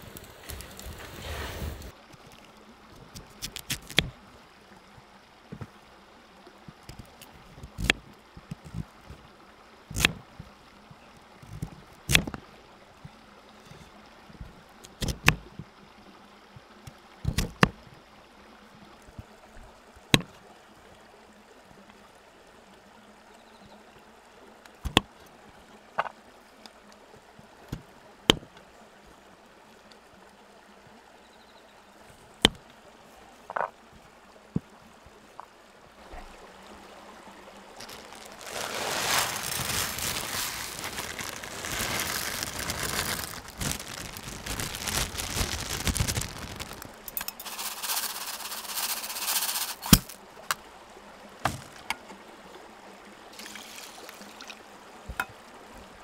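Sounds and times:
plastic bag rustling: 0:37.8 - 0:50.2.

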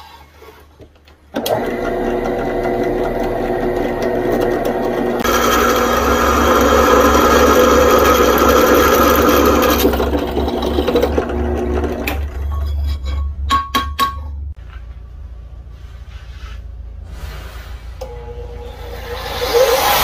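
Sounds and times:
motor hum: 0:01.4 - 0:12.4
drill press boring steel: 0:01.4 - 0:12.5.

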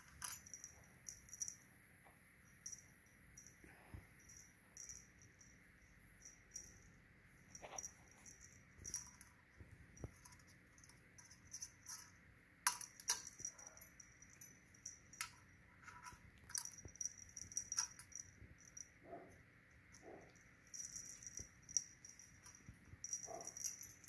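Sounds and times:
cat toy chain jingling: 0:10.0 - 0:19.2, 0:20.0 - 0:24.0.

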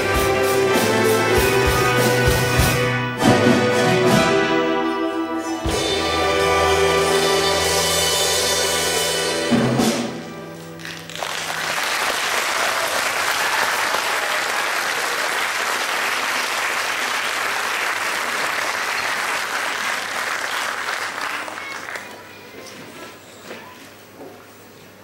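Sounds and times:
folk ensemble final chord: 0:00.0 - 0:11.1
audience applause: 0:10.8 - 0:22.4.

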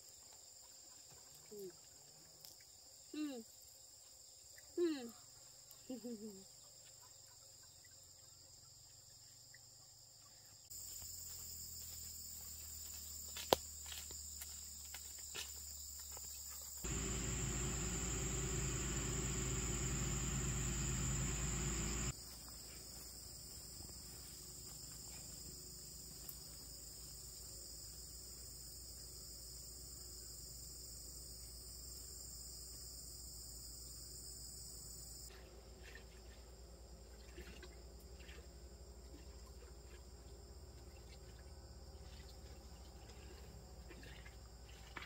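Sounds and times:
insects chirring: 0:10.7 - 0:28.0.

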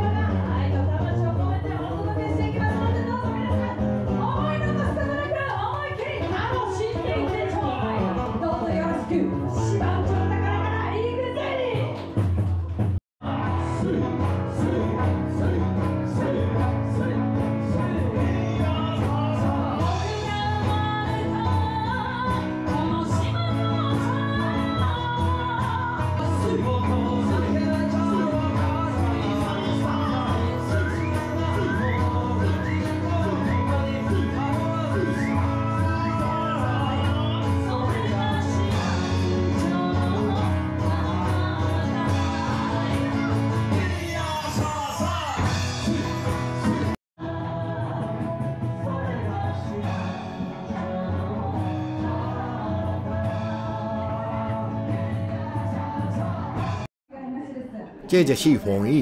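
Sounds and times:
acoustic guitar: 0:00.0 - 0:56.9
folk singing: 0:50.7 - 0:56.8
person singing: 0:58.1 - 0:59.0.

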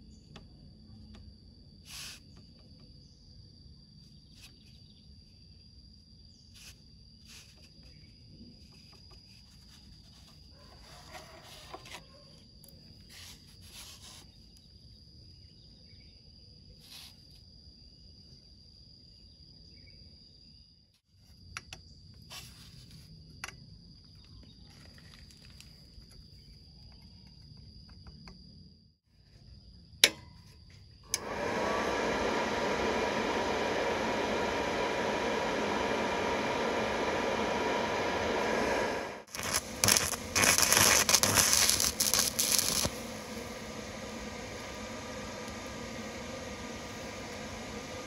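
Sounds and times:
low steady rumble: 0:31.2 - 0:48.0
high-pitched insect tone: 0:39.3 - 0:42.9.

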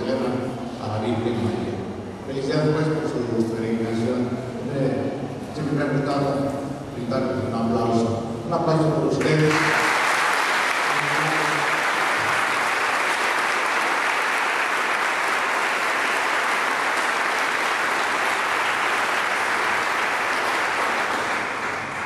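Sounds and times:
congregation applauding: 0:09.2 - 0:22.0.

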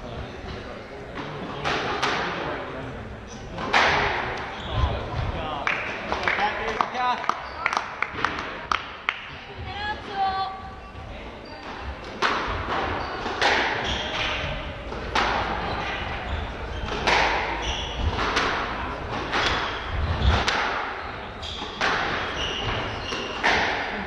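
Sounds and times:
squash ball striking rackets and walls: 0:01.6 - 0:02.5, 0:03.5 - 0:06.8, 0:11.6 - 0:24.0
shoes squeaking on wooden floor: 0:12.7 - 0:23.6.

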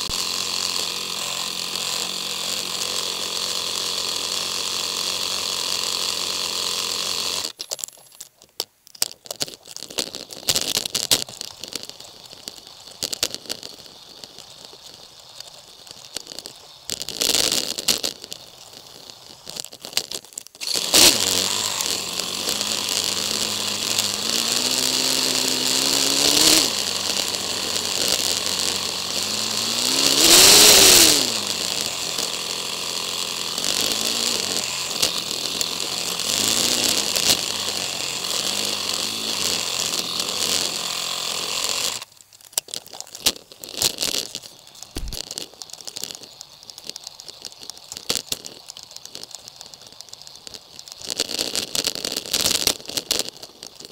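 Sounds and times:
motorcycle engine revving: 0:00.0 - 0:07.6, 0:20.6 - 0:42.1, 0:43.8 - 0:45.4.

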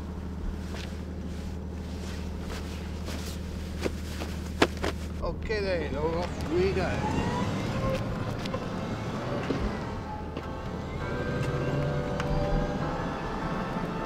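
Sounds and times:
soft piano music: 0:09.4 - 0:14.0.

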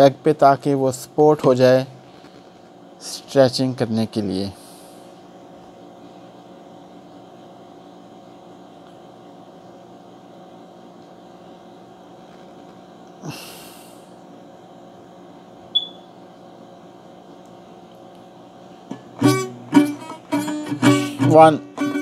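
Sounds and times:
short high chirp: 0:15.8 - 0:16.0.

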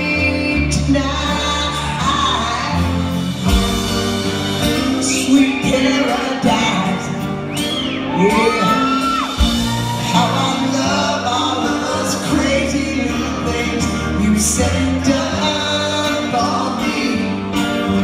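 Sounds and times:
male lead vocal singing: 0:00.0 - 0:03.2, 0:04.6 - 0:07.5, 0:08.1 - 0:18.0
live rock band playing: 0:00.0 - 0:18.0
high gliding whoops: 0:07.5 - 0:10.7.

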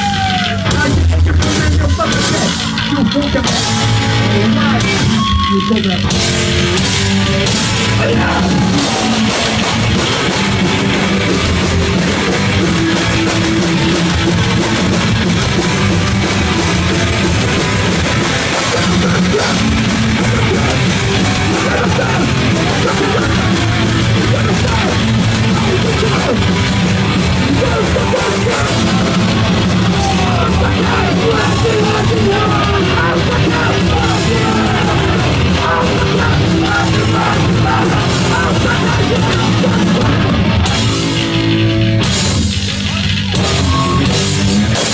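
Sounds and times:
distorted electric guitar: 0:00.0 - 0:44.9
drum kit: 0:00.0 - 0:44.9
person singing into a microphone: 0:30.0 - 0:40.4.

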